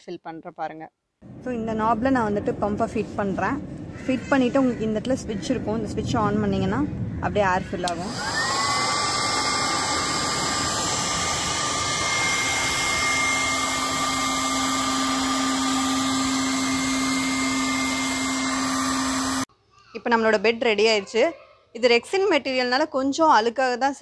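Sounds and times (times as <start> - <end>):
electric air pump whirring: 7.9 - 19.5.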